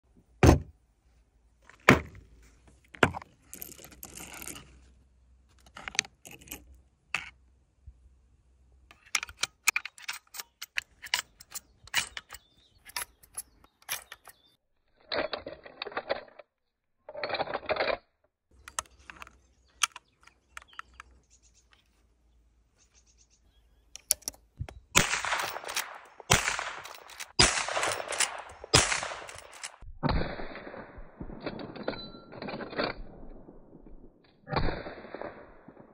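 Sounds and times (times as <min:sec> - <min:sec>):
metallic clacks of rifle action: 0:08.9 - 0:16.5, 0:17.1 - 0:18.0, 0:18.6 - 0:22.0, 0:24.0 - 0:29.9
rifle shots: 0:25.0 - 0:31.7, 0:34.5 - 0:35.9.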